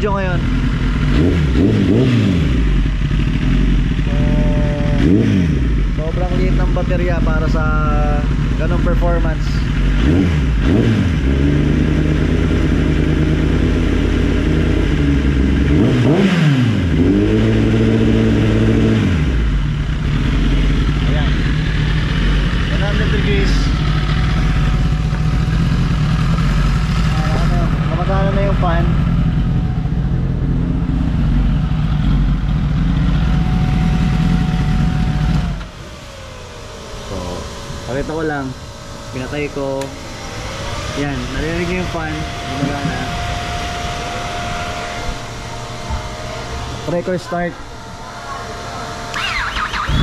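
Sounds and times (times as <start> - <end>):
motorcycle engine idling and revving: 0.0 - 50.0
radiator fan whirring: 21.2 - 50.0.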